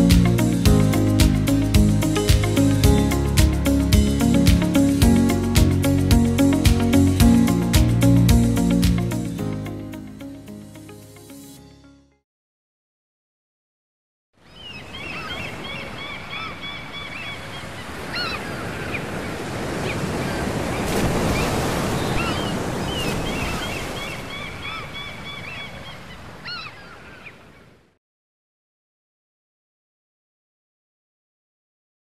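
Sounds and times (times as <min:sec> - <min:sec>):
surf washing on shore: 0:14.8 - 0:27.6.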